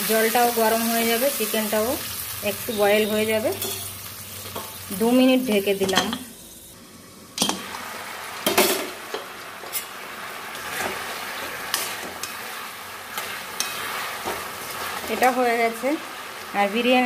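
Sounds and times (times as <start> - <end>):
steel spoon stirring in pan: 8.5 - 17.0.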